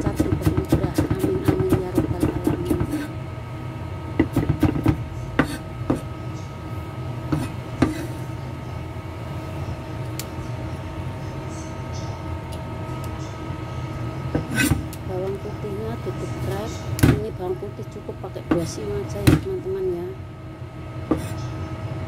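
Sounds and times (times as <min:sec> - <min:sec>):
background hum: 0:00.0 - 0:22.0
cleaver chopping on wooden board: 0:04.2 - 0:06.0.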